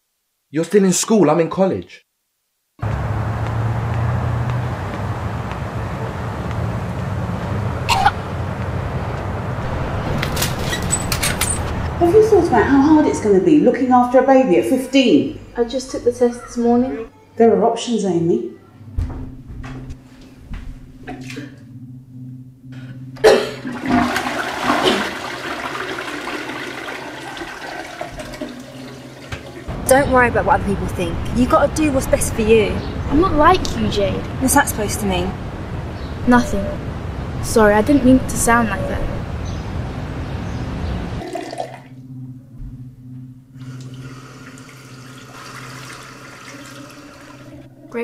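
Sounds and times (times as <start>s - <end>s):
loud even noise: 9.3s - 13.5s
toilet flush click: 23.6s - 29.7s
water rushing in toilet: 23.6s - 29.7s, 41.2s - 41.9s, 43.6s - 48.0s.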